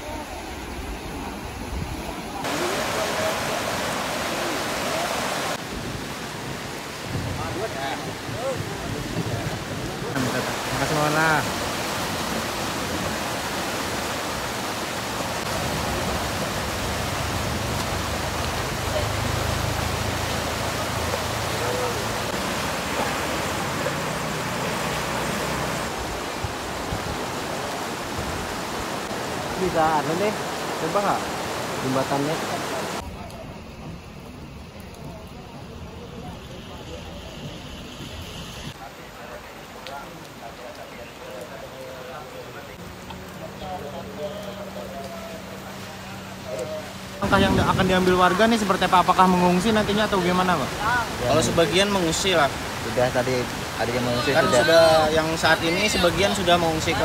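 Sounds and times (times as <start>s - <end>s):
heavy rain: 0.0s - 57.0s
rushing water: 0.0s - 57.0s
faint voices: 32.6s - 47.7s.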